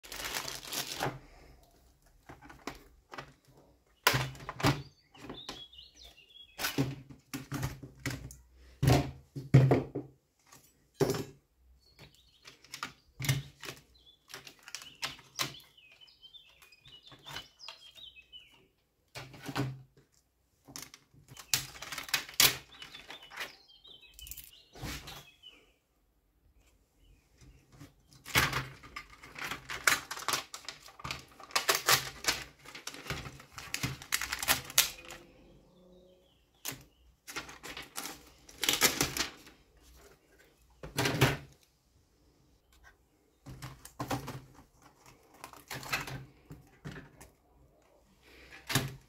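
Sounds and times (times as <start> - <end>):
plastic packaging crinkling: 0.0 - 1.6, 28.4 - 35.3, 37.2 - 39.6
small parts clicking and knocking: 24.1 - 24.6.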